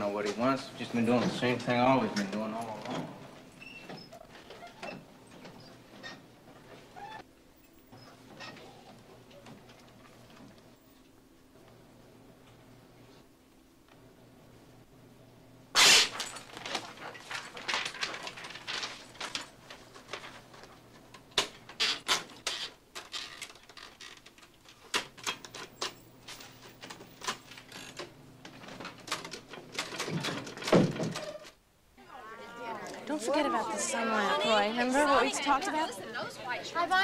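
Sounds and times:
loud typewriter clack: 15.8s - 19.4s
paper being handled: 15.8s - 21.0s.

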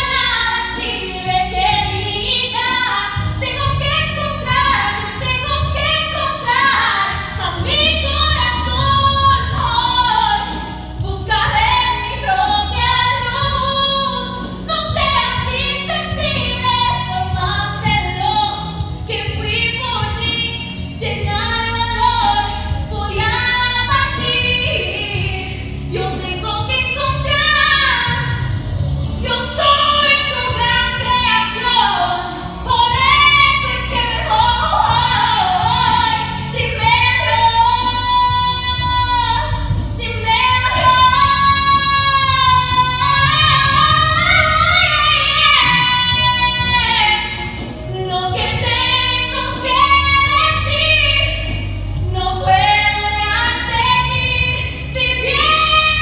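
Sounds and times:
woman singing with vibrato: 0.0s - 56.0s.

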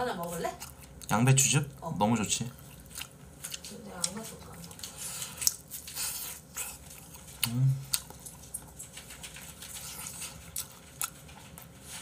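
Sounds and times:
person chewing with wet clicks: 0.2s - 12.0s
closed-mouth hum: 7.3s - 8.3s.

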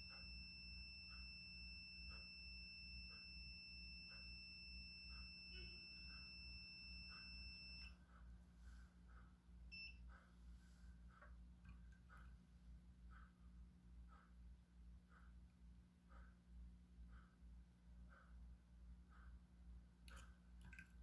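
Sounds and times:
multimeter continuity beep: 0.0s - 8.0s, 9.7s - 10.2s.

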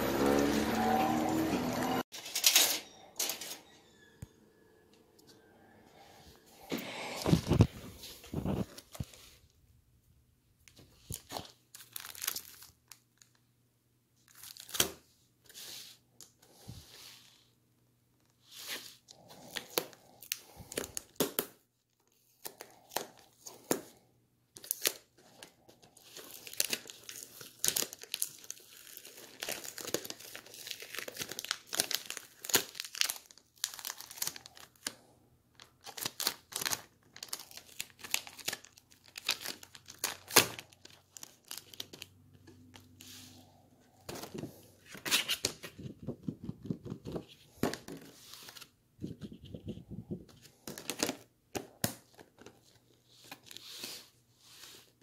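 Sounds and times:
food wrapping crinkling and tearing: 11.0s - 13.4s, 24.6s - 43.0s.

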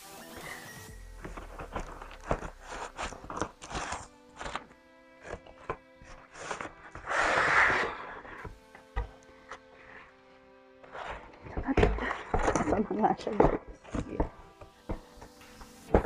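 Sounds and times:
soft background music: 0.0s - 16.0s
cardboard packaging rustling: 0.2s - 9.7s.

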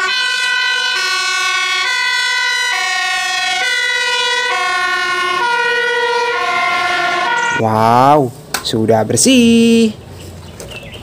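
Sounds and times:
fire engine siren: 0.0s - 8.2s.

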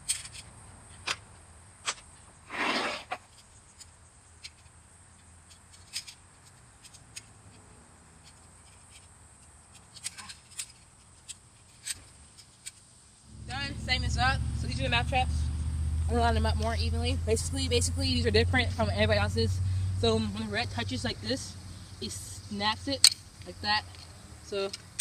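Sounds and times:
scraping rustle: 2.4s - 13.5s.

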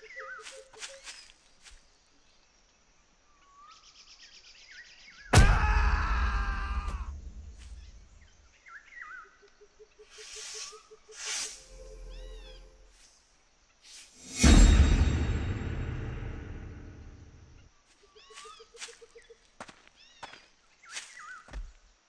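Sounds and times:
bird chirps: 0.0s - 1.5s, 7.5s - 13.0s, 17.4s - 21.6s.

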